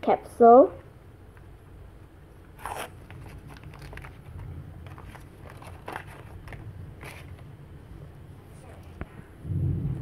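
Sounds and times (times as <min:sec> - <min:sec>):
paper seal peeling: 0:02.5 - 0:04.4
tissue paper crinkling: 0:02.5 - 0:07.4.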